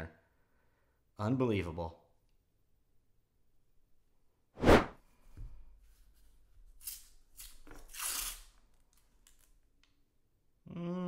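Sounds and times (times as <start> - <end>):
paper wrappers tearing: 6.8 - 9.6.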